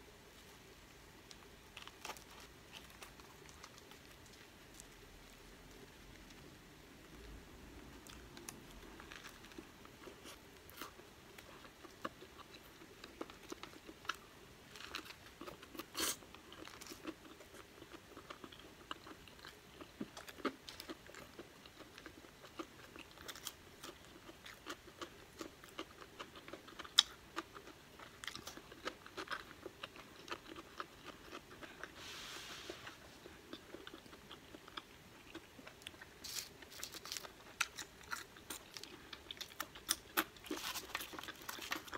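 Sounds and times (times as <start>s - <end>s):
person biting and chewing food: 32.9s - 41.9s
small crunches: 34.7s - 41.9s.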